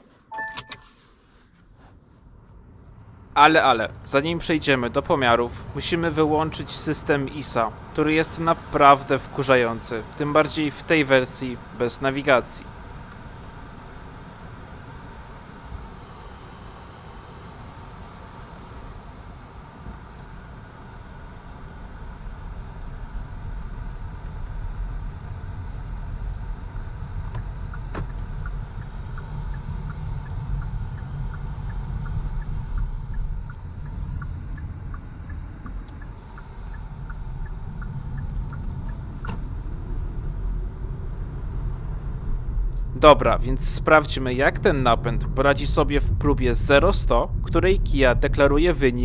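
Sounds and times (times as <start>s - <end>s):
road and tyre rumble: 1.0s - 49.0s
light ticking: 27.2s - 39.7s.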